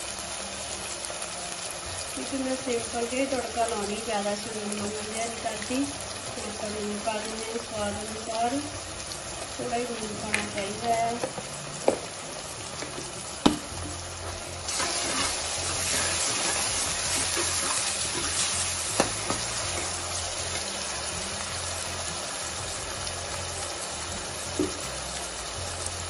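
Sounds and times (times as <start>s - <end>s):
vegetables sizzling in a pan: 0.0s - 26.0s
ladle stirring: 13.8s - 20.7s.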